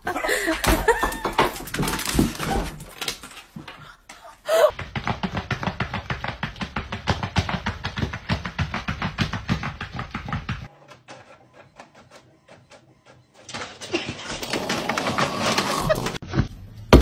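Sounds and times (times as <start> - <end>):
knocks and thumps: 4.7 - 10.7.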